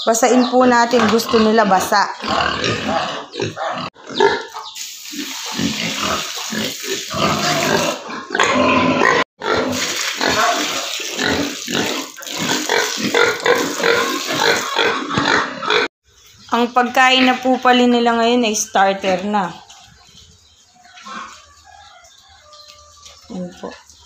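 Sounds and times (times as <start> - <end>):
piglets grunting: 0.9 - 4.7.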